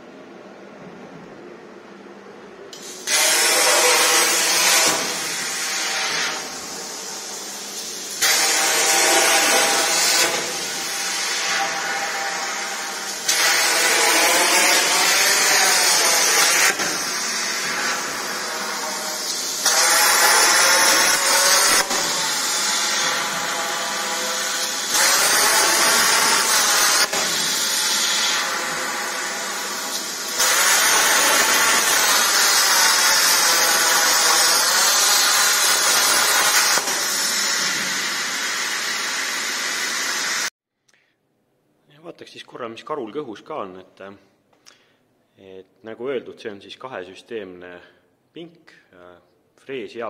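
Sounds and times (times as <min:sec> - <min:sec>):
plasma cutter hissing: 0:02.8 - 0:40.5.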